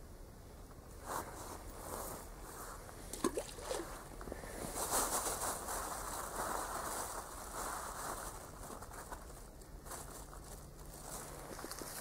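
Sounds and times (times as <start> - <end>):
rustling clothing and dry grass: 0.9 - 12.0
bait ball plopping into water: 3.2 - 3.8.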